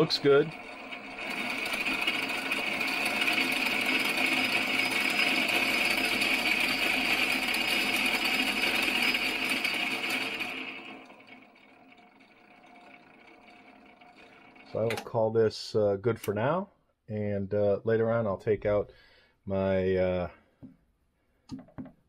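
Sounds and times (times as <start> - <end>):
lathe motor and gear whine: 0.0 - 15.1.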